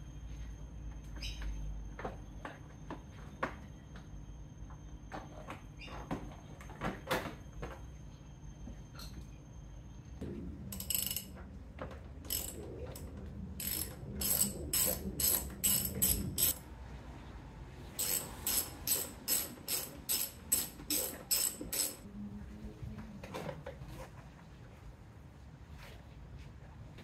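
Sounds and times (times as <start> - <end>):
ratchet wrench clicking: 10.8 - 11.3, 12.3 - 13.0, 13.6 - 16.6, 18.0 - 22.0.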